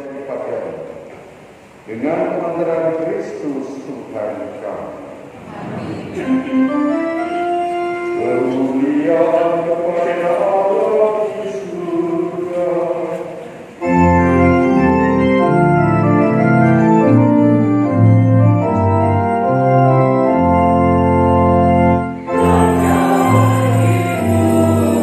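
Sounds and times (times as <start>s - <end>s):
electronic organ playing chords: 6.1s - 10.3s, 13.7s - 25.0s
choir singing: 22.2s - 25.0s.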